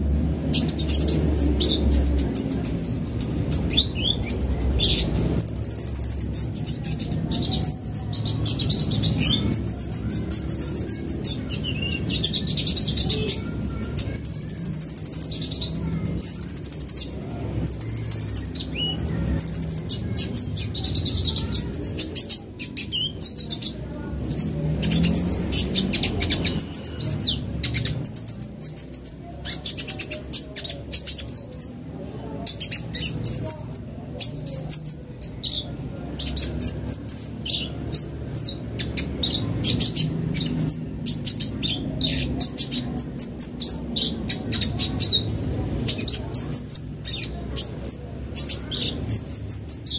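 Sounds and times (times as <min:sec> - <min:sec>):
sunbird singing: 0:00.5 - 0:31.8, 0:45.9 - 0:49.9.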